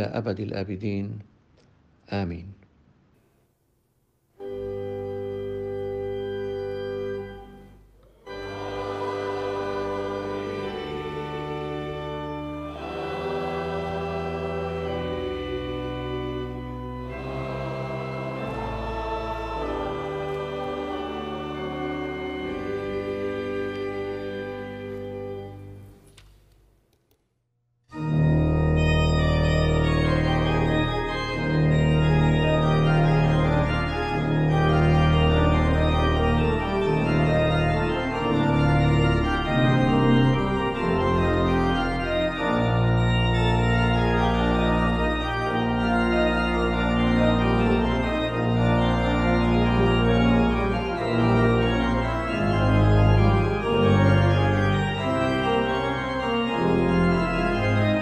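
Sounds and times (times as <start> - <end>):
organ music: 4.3 - 26.8, 27.9 - 58.0.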